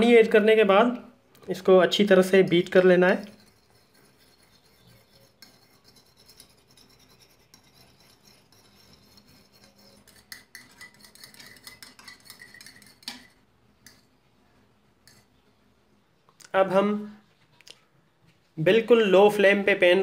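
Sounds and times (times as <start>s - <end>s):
fork beating eggs in bowl: 2.1s - 14.2s, 15.0s - 15.4s
fork clinking on bowl: 3.2s - 14.2s.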